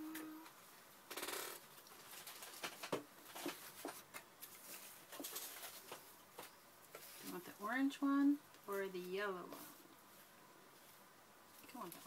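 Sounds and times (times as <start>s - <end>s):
paper scraps rustling: 2.0s - 6.1s.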